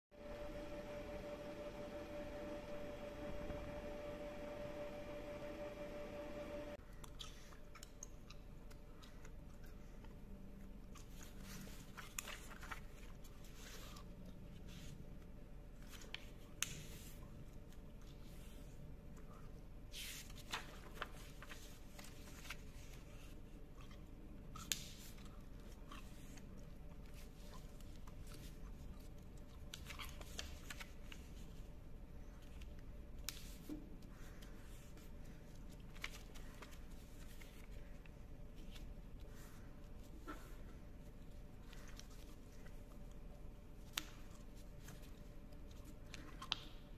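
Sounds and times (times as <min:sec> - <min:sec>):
low steady hum: 0:00.2 - 0:46.9
paper rustling: 0:11.0 - 0:14.0, 0:19.9 - 0:23.3, 0:33.3 - 0:43.2.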